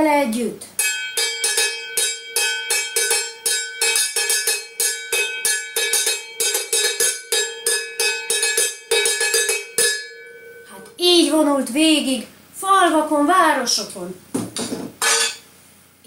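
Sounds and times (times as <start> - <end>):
wooden spoons drumming on metal pot: 0.8 - 10.7, 14.6 - 15.5.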